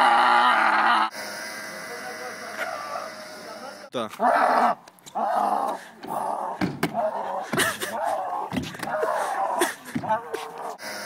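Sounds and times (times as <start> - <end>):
person crying out: 0.0 - 1.1, 4.2 - 10.4.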